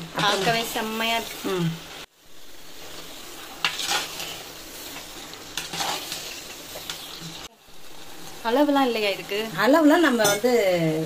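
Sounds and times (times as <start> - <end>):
meat sizzling in a pot: 0.0 - 11.0
metal ladle scraping pan: 3.5 - 7.4.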